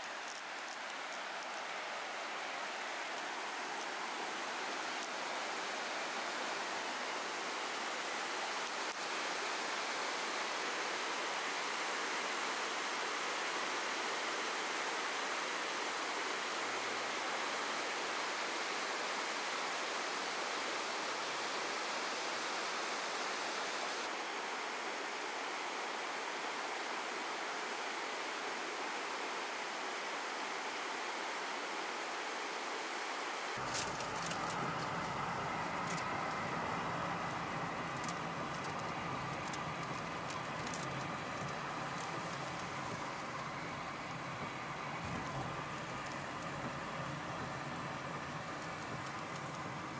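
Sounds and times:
water rushing: 0:27.3 - 0:49.9.

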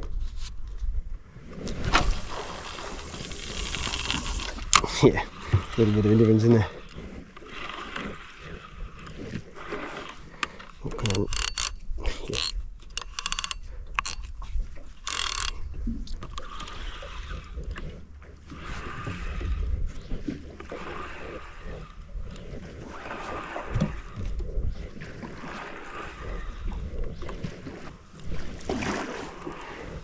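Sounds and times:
wind rumble on microphone: 0:00.0 - 0:07.3, 0:13.6 - 0:30.0
water lapping against boat hull: 0:01.4 - 0:30.0.

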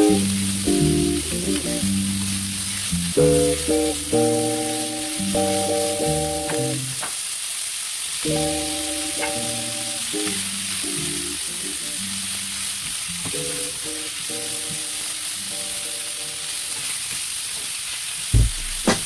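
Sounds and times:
background music: 0:00.0 - 0:02.1, 0:03.2 - 0:06.9, 0:08.3 - 0:12.0
food sizzling in a frying pan: 0:00.0 - 0:18.9.

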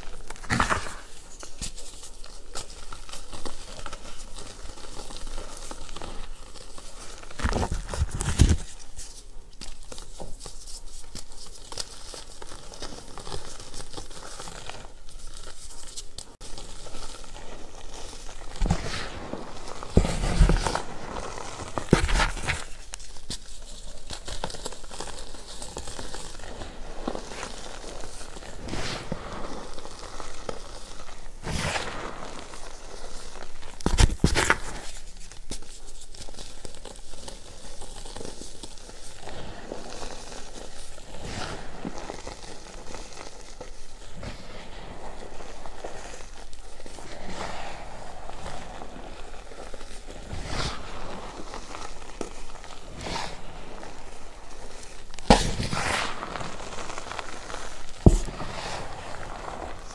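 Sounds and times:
chalk block crunching: 0:00.0 - 0:59.9
powder sifting through fingers: 0:00.0 - 0:59.9.

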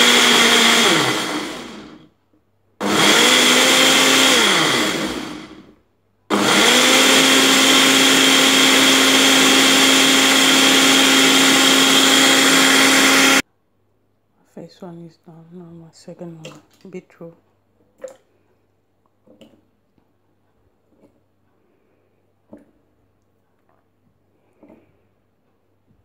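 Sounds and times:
blender motor: 0:00.0 - 0:02.0, 0:02.8 - 0:05.7, 0:06.3 - 0:13.4.

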